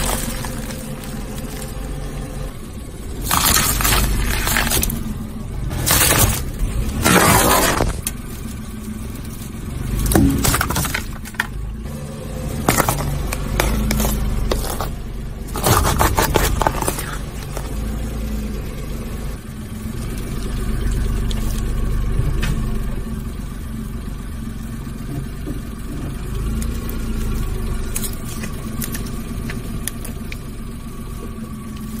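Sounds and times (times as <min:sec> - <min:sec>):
metal can crunching: 0:00.0 - 0:02.3, 0:03.1 - 0:11.7, 0:12.5 - 0:18.0
car engine rumble: 0:00.0 - 0:32.0.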